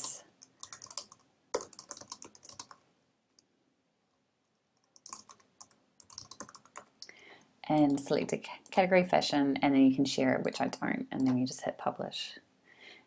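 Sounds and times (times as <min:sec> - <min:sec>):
computer keyboard typing: 0:00.0 - 0:02.8, 0:04.8 - 0:07.1.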